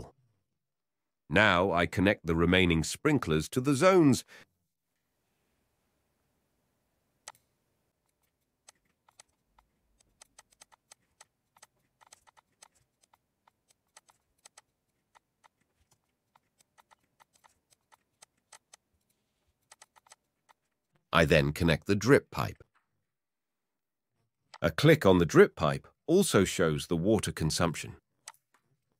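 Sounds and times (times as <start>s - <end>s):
computer mouse clicks: 7.2s - 18.8s, 19.5s - 20.8s, 28.2s - 28.7s.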